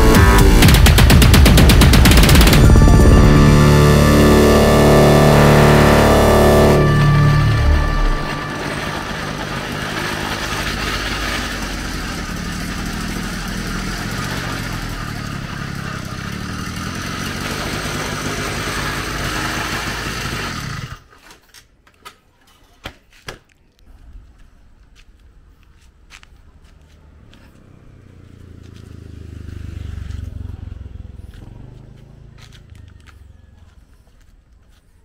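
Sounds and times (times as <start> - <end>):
road noise: 0.0 - 1.2, 1.8 - 21.1, 23.9 - 35.0
two-stroke engine running: 0.0 - 21.1, 27.0 - 33.5.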